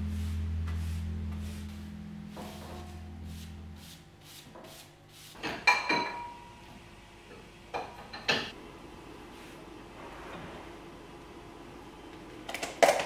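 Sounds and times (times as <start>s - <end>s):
broom brushing wooden tabletop: 0.0s - 5.6s
crockery clinking: 5.5s - 6.5s.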